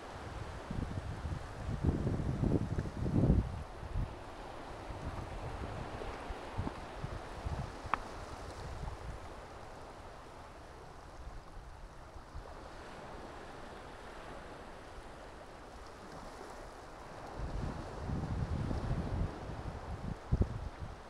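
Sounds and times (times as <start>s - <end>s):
wind on microphone: 0.0s - 9.5s, 17.1s - 21.0s
small waves washing on shore: 0.0s - 21.0s.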